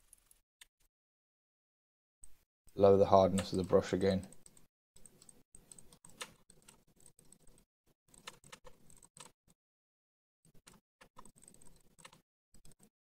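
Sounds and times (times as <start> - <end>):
computer mouse and keyboard clicking: 3.3 - 9.4, 10.5 - 12.9.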